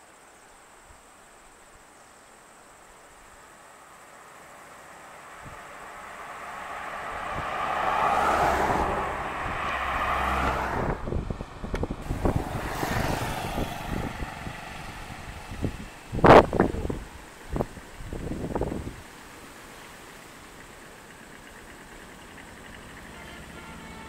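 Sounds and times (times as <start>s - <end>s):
car driving past: 3.5s - 18.8s, 19.8s - 24.0s.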